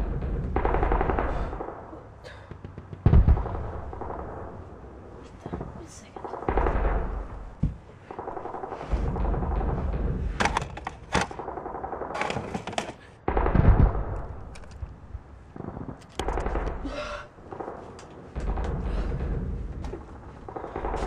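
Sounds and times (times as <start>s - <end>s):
machine-gun fire bursts: 0.0s - 1.9s.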